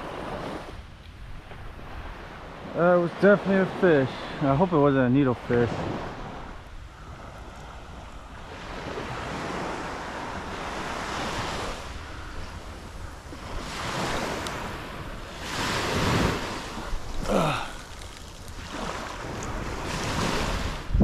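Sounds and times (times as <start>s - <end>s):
small waves washing onto beach: 0.0s - 21.0s
wind buffeting microphone: 5.2s - 21.0s.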